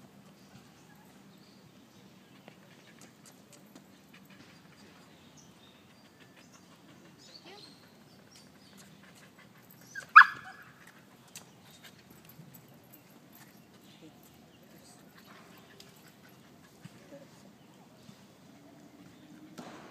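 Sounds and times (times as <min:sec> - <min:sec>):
dog barking: 0:10.1 - 0:10.6.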